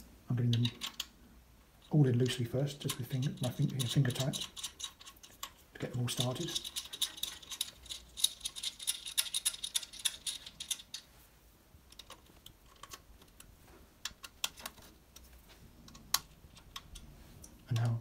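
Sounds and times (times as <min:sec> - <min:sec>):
screws clicking as turned by hand: 0:00.5 - 0:01.2, 0:02.7 - 0:11.1.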